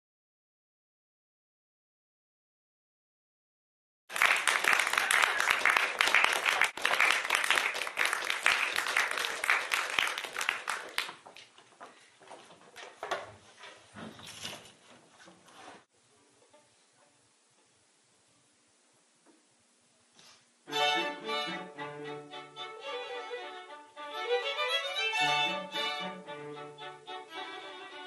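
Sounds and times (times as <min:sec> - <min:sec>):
audience applause: 0:04.1 - 0:11.5.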